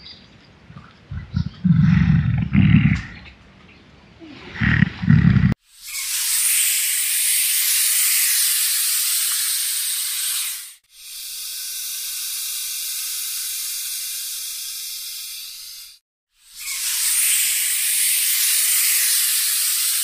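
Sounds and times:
snake hissing: 4.2 - 10.8, 16.4 - 20.0.

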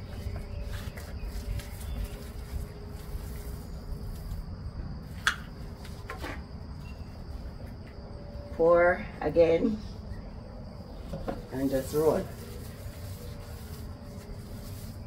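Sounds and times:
paint roller on concrete floor: 0.0 - 4.4, 11.2 - 15.0.

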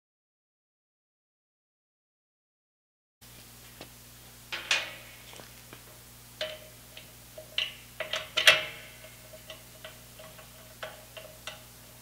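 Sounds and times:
steady low hum: 3.2 - 12.0
metal fittings clinking: 6.4 - 12.0.

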